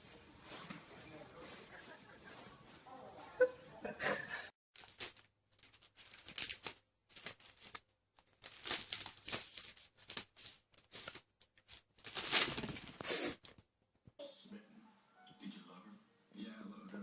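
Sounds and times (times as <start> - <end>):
crinkly rustling: 0.0 - 3.4, 4.8 - 13.2.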